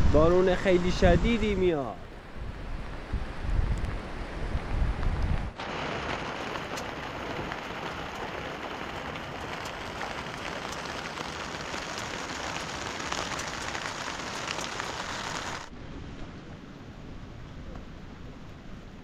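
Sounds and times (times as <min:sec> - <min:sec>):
heavy rain on plastic sheet: 0:02.3 - 0:15.7.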